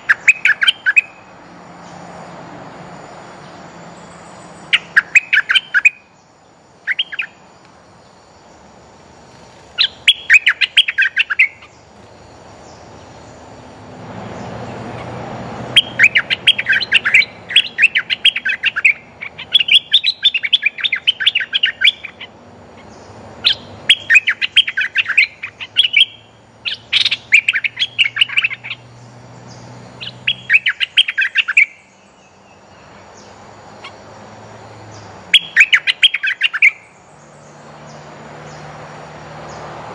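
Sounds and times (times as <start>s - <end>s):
bulbul chirping: 0.0s - 1.3s, 4.5s - 6.2s, 6.8s - 7.4s, 9.8s - 11.8s, 14.9s - 32.3s, 35.3s - 37.0s.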